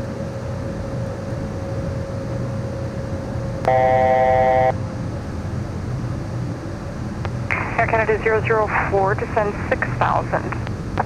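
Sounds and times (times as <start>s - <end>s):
faint constant whine: 0.0s - 11.0s
jet cabin noise: 0.0s - 11.0s
electronic alert tone: 3.7s - 4.8s.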